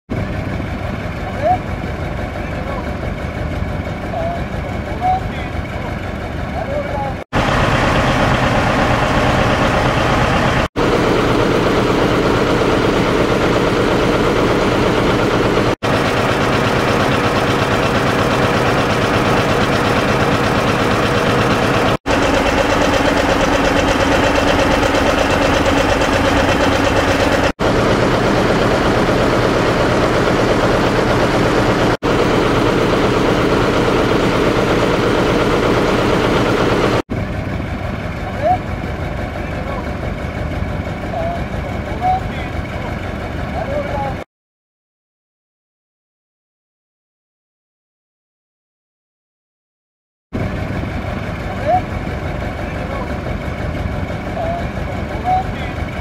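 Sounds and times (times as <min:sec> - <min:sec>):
tractor engine idling: 0:00.1 - 0:44.2, 0:50.4 - 0:56.0.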